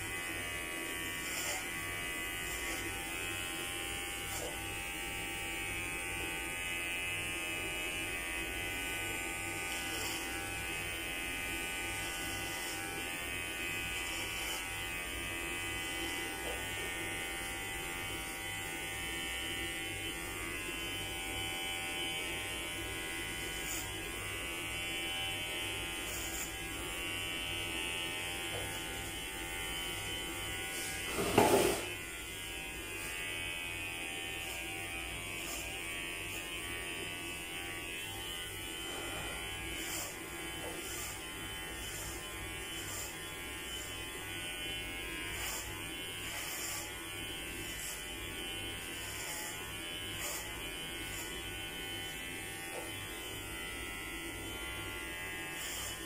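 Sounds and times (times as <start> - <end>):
electric hair clipper buzzing: 0.0 - 56.0.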